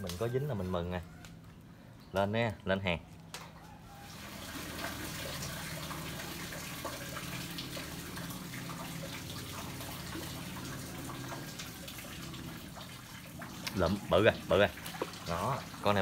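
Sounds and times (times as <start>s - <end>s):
water splashing and trickling: 3.9s - 16.0s.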